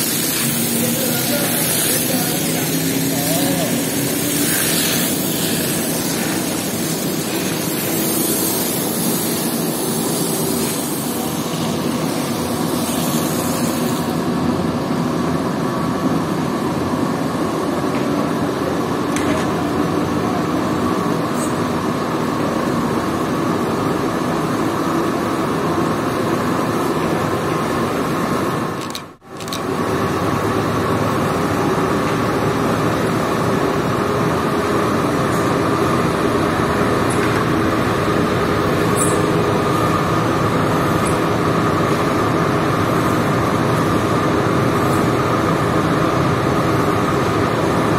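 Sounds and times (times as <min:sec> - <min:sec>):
hose water spray hissing: 0:00.0 - 0:14.3
machinery drone: 0:00.0 - 0:17.7.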